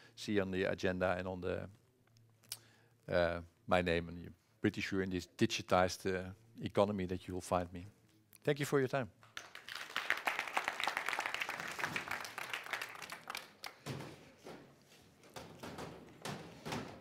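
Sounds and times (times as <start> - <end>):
audience applause: 9.4 - 13.8.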